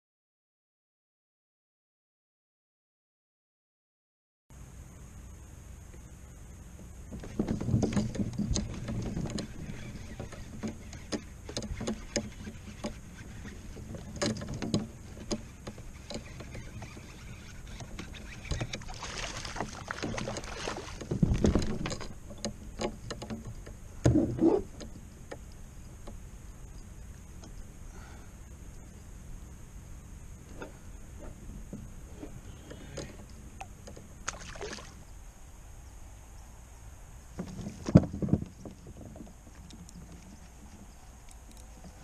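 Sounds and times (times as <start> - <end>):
knocks and clicks in a kayak: 6.8 - 27.7, 30.4 - 34.4, 37.3 - 42.0.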